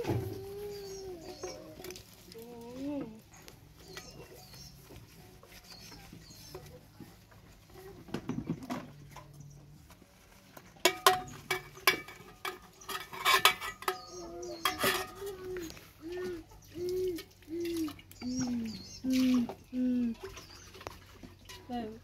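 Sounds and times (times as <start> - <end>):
metal cookware clattering: 10.8 - 15.5.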